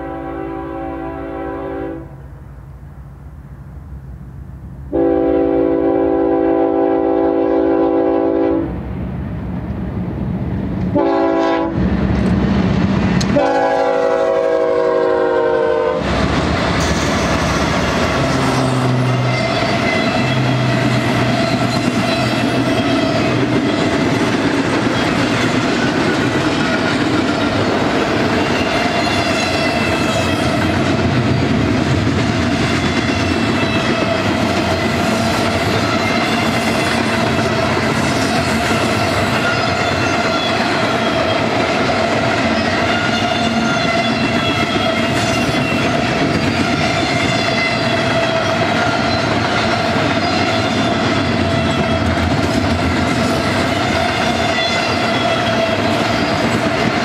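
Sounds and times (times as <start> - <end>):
train horn blasts: 0.0 - 2.3, 4.9 - 8.8, 10.9 - 11.8, 13.3 - 16.1, 18.2 - 23.4, 42.9 - 48.6, 53.7 - 55.9
diesel locomotives passing: 0.0 - 57.0
wheels clattering on rail: 16.0 - 57.0.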